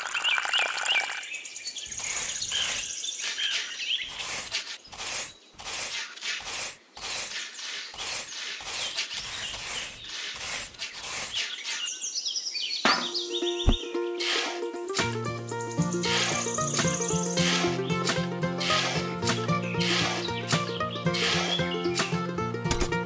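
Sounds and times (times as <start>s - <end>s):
birds chirping: 0.0s - 14.0s, 14.7s - 23.0s
trowel scraping wet cement: 1.9s - 11.9s, 13.7s - 14.6s, 16.0s - 22.1s
music: 13.0s - 23.0s.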